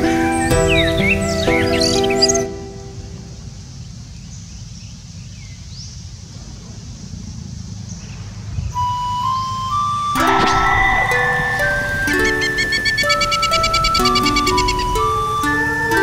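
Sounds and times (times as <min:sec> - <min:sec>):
simple melody music: 0:00.0 - 0:03.5, 0:08.8 - 0:16.0
faint bird chirps: 0:08.8 - 0:15.3.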